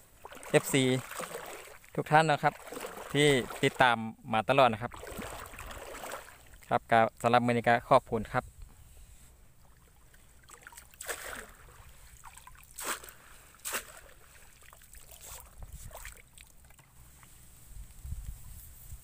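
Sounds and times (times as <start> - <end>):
net splashing in shallow water: 0.0 - 4.0, 4.7 - 6.8, 9.6 - 17.6.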